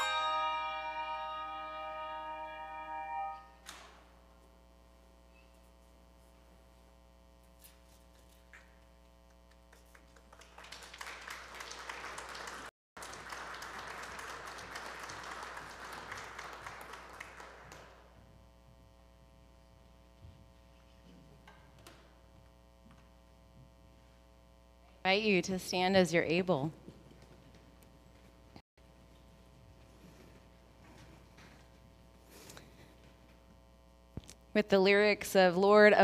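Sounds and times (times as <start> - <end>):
congregation applauding: 9.7 - 18.2.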